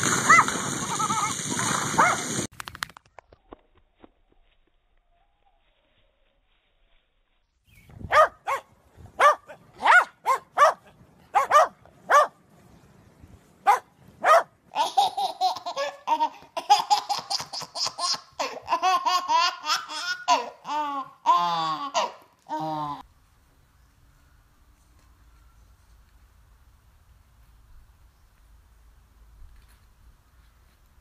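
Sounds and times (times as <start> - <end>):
baby laughing and squealing: 0.2 - 2.3, 14.7 - 23.0
dogs barking in high yaps: 1.8 - 2.4, 8.0 - 12.4, 13.6 - 14.5.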